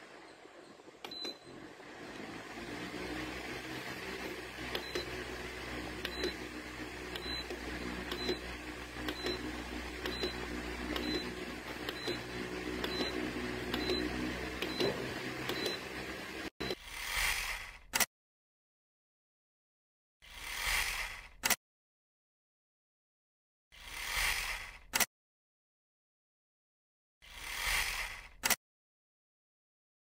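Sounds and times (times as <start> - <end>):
fan motor hum and air rush: 1.4 - 16.5.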